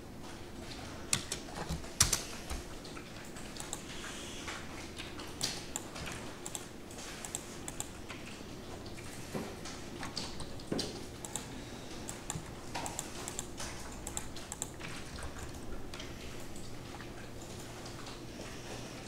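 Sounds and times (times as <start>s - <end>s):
keyboard keystrokes: 1.1s - 2.7s, 12.1s - 15.6s.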